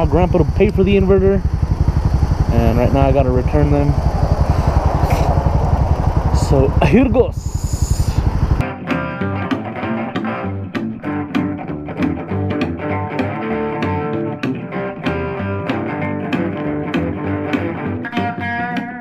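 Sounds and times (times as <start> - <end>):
bass: 0.0 - 19.0
plucked guitar: 8.6 - 19.0.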